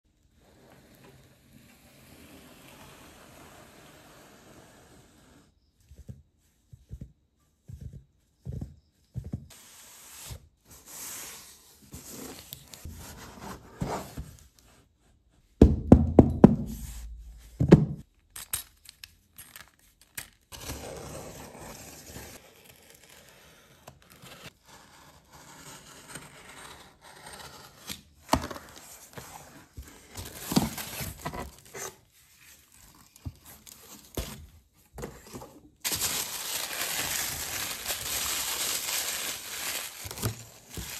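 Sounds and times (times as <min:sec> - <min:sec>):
rustling foam wrap: 0:35.8 - 0:40.9.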